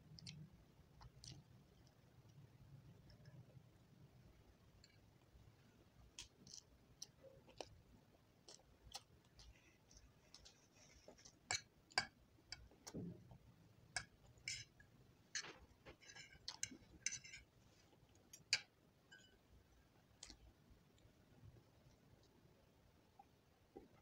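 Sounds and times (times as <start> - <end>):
person chewing noodles: 0.1 - 2.4, 6.0 - 11.5.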